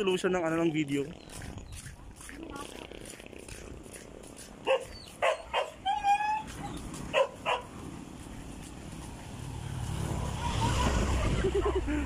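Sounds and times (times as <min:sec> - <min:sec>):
dog yelping: 0:04.6 - 0:07.7
dog barking: 0:04.6 - 0:07.8.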